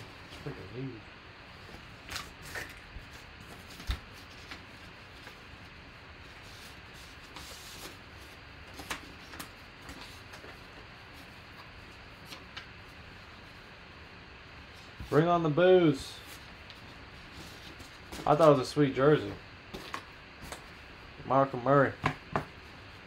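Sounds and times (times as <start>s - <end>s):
fabric and paper rustling: 1.6s - 13.7s, 15.9s - 18.9s.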